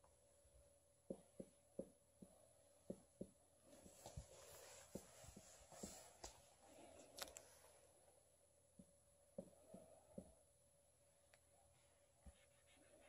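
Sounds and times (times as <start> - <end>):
marker tapping on whiteboard: 1.1 - 4.0, 8.8 - 10.4.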